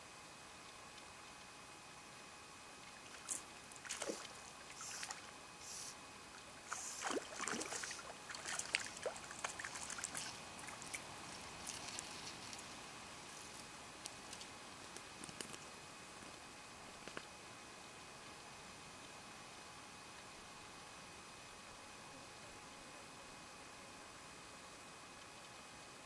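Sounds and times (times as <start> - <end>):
fish splashing at water surface: 3.0 - 5.3, 6.6 - 11.0.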